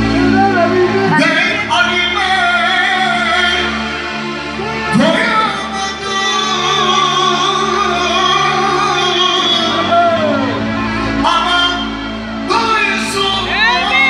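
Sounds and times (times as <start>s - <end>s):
person singing into microphone: 0.0s - 4.0s, 4.6s - 14.0s.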